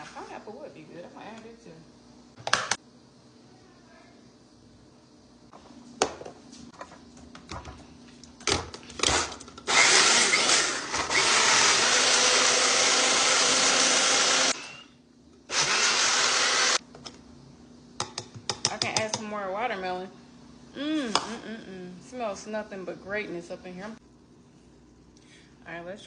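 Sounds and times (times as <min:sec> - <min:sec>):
blender motor running: 0:09.0 - 0:14.9, 0:15.5 - 0:16.8.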